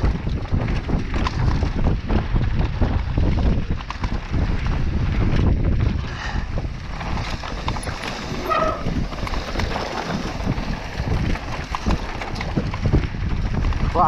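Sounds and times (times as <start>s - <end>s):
low constant rumble: 0.0s - 14.0s
mountain bike rattling: 0.0s - 14.0s.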